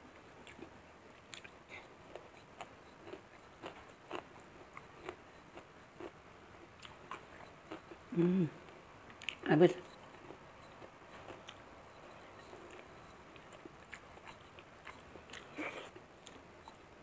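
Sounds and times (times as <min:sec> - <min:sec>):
person chewing food: 0:00.3 - 0:16.9
short vocal sound: 0:08.1 - 0:08.6.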